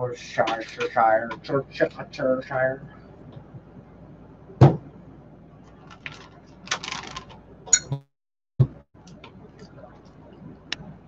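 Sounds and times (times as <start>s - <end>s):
plastic bag crinkling: 5.8s - 7.3s.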